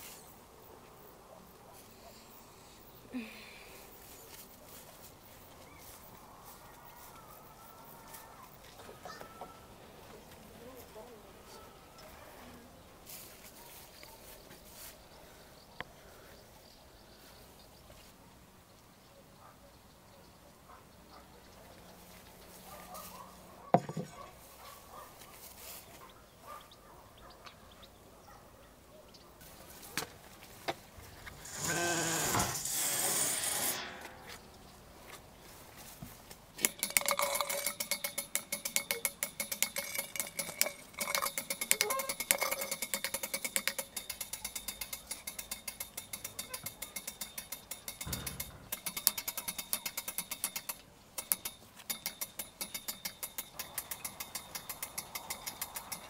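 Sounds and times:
metallic squeak: 0:31.4 - 0:34.5, 0:39.8 - 0:42.9, 0:44.0 - 0:55.7
winch ratchet clicking: 0:36.6 - 0:56.0.

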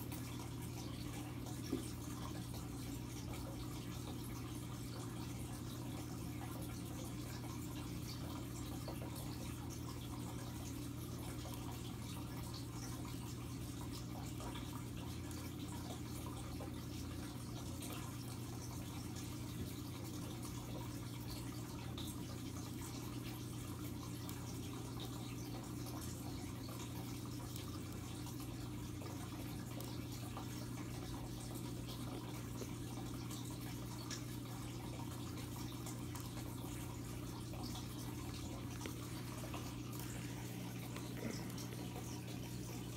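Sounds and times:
aquarium filter humming: 0:00.0 - 0:42.9
small fizzy ticks: 0:00.0 - 0:42.9
water trickling and bubbling: 0:00.0 - 0:42.9.

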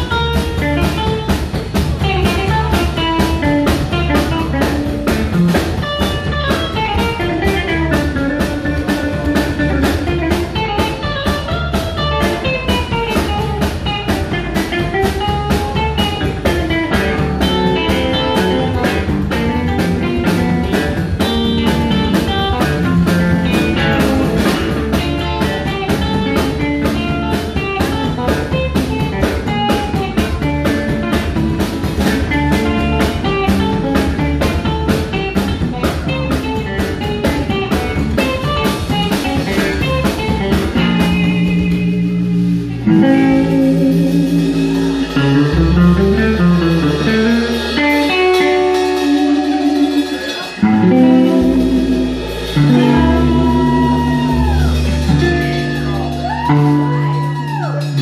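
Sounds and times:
drum kit: 0:00.0 - 0:58.0
electric guitar: 0:00.0 - 0:58.0
live band playing: 0:00.0 - 0:58.0
upright double bass: 0:00.0 - 0:58.0.

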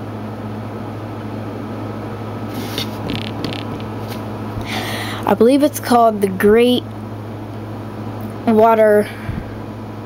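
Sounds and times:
low hum and hiss: 0:00.0 - 0:10.0
soft rustles: 0:02.5 - 0:04.3.

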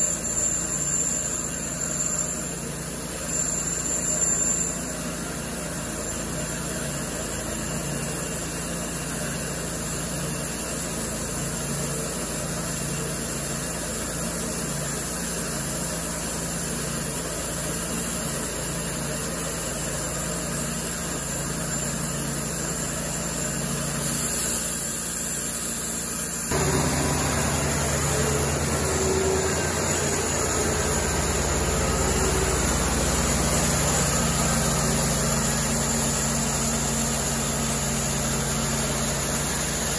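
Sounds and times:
band sawmill sawing through log: 0:21.0 - 0:39.9.

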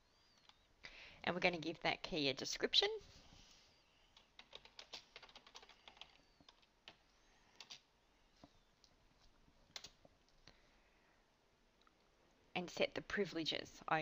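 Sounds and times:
faint keyboard typing: 0:04.1 - 0:10.5.

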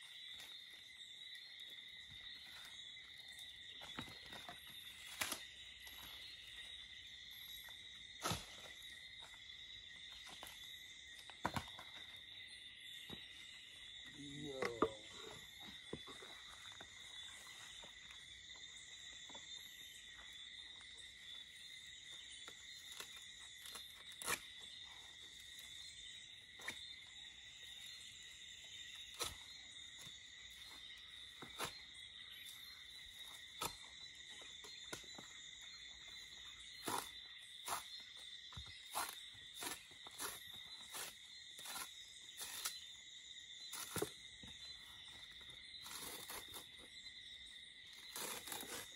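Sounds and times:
insects chirring: 0:00.0 - 0:48.9.

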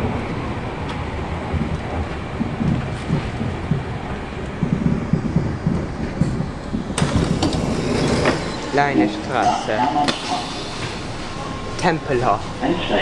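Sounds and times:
train wheels rumbling: 0:00.0 - 0:13.0
sharp train door noise: 0:06.9 - 0:11.4.

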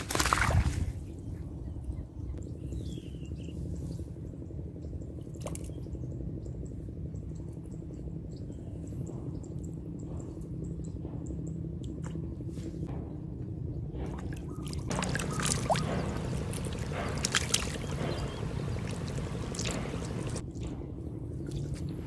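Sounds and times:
water splashing and dripping: 0:00.0 - 0:00.8, 0:14.1 - 0:20.4.

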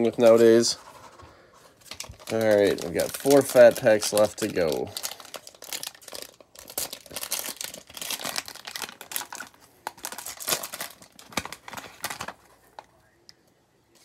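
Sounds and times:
wrapper tearing and crinkling: 0:01.9 - 0:12.5.

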